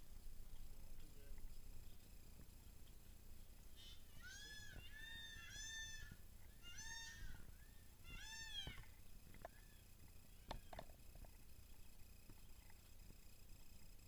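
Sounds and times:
faint peacock calls: 3.6 - 12.7.

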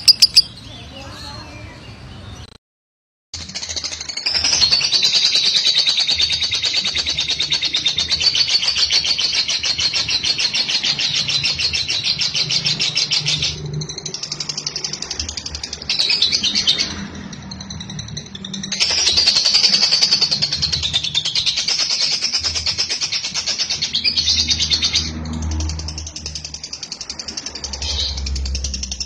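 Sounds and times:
lovebird rattling chatter trill: 0.0 - 0.5.

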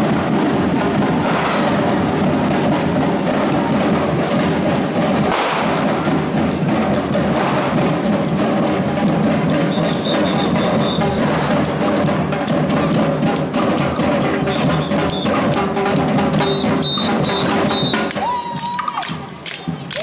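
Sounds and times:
samba drums: 0.0 - 20.0
high piping whistle pulses: 9.6 - 11.4, 14.4 - 15.4, 16.4 - 18.1.

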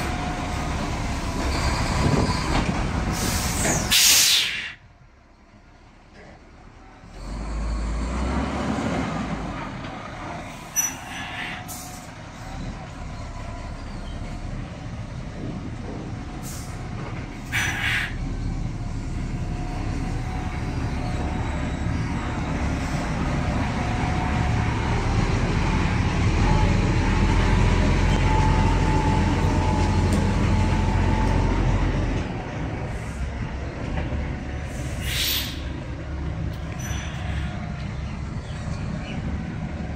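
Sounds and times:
short air hiss: 3.1 - 4.8, 34.7 - 35.6.

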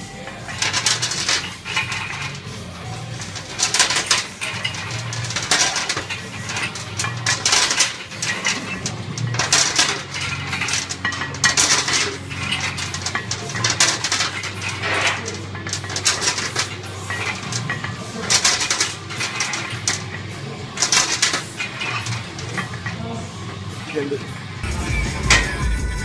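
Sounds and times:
weight plates clinking: 0.0 - 24.6.

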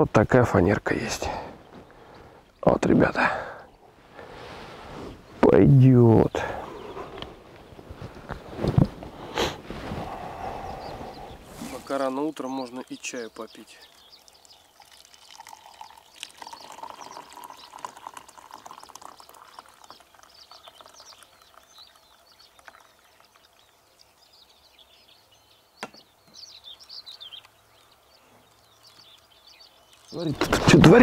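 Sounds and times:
high bird chirps: 10.6 - 30.7
tea pouring into a cup: 12.8 - 24.2.

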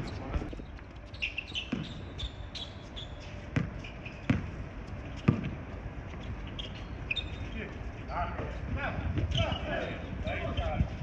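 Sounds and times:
basketball bouncing on hard court: 1.7 - 2.0, 3.6 - 4.5, 5.2 - 5.6.

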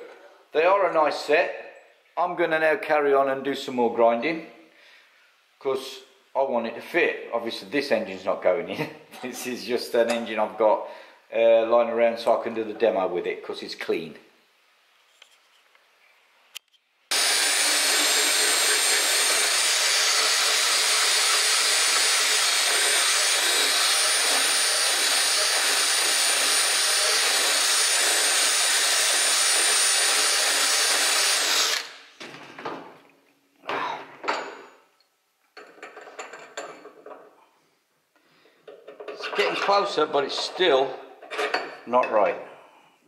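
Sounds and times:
die grinder whining on metal: 17.1 - 32.0.

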